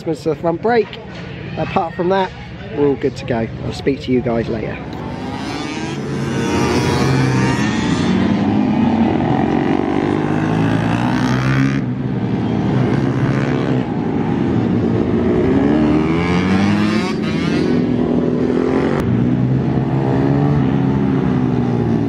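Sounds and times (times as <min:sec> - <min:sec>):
pit bike engine revving: 0:04.9 - 0:22.0.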